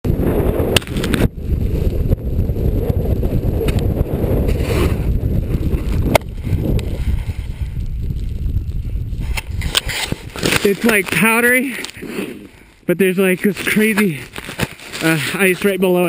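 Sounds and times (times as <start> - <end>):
wind rumbling on microphone: 0.0 - 16.0
snowboard sliding over snow: 0.1 - 11.3.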